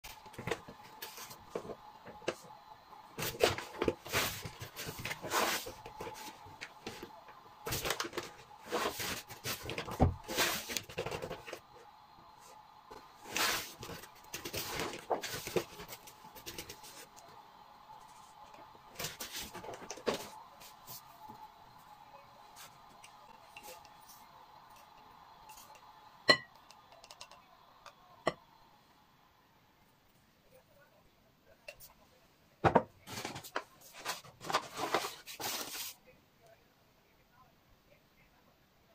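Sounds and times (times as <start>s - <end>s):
faint steady hum: 0.0s - 38.9s
paper bag rustling: 3.2s - 11.6s, 13.0s - 17.1s, 18.9s - 21.3s, 33.0s - 36.0s.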